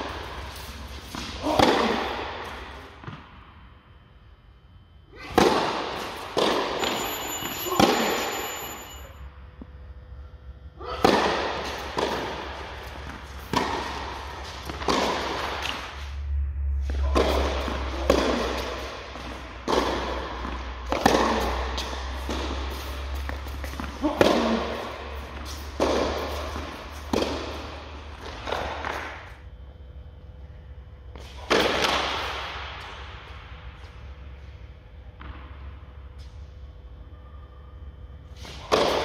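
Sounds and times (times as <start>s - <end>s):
racket hitting tennis ball: 0.0s - 3.3s, 5.2s - 7.0s, 7.7s - 8.4s, 10.9s - 16.1s, 16.8s - 29.4s, 31.2s - 33.9s, 38.4s - 39.0s
steady low hum: 0.0s - 39.0s
tennis ball bouncing: 5.4s - 7.0s, 11.0s - 16.0s, 16.9s - 29.3s.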